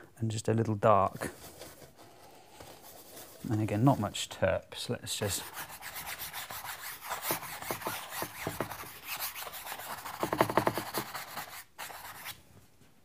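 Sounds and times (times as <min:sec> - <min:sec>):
stiff brush scrubbing on canvas: 0:05.3 - 0:12.3.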